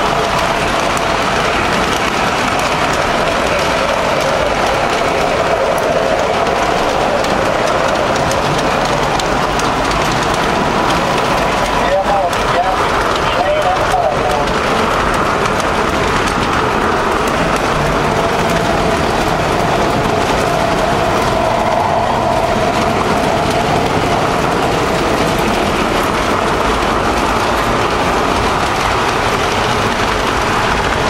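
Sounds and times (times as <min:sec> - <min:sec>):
model train motor and wheels whirring: 0:00.0 - 0:31.0.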